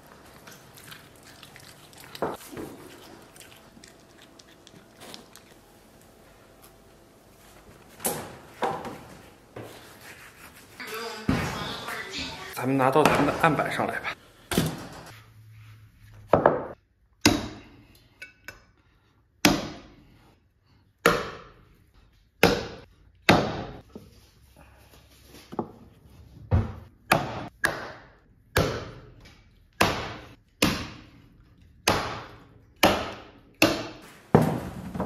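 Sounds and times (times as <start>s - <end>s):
cleaver chopping bone on wood: 17.2s - 17.6s, 19.4s - 19.9s, 21.0s - 21.5s, 22.4s - 23.8s, 27.1s - 29.0s, 29.8s - 31.1s, 31.8s - 34.0s.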